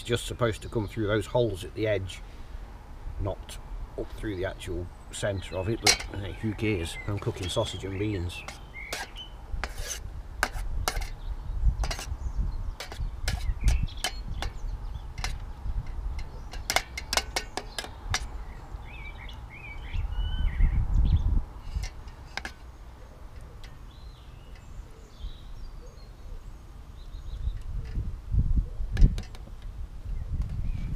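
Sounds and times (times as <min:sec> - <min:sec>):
bird chirping: 0:04.0 - 0:09.5, 0:10.9 - 0:28.1
spoon scraping metal pan: 0:05.8 - 0:11.2, 0:11.8 - 0:12.2, 0:12.8 - 0:18.4, 0:21.6 - 0:23.9.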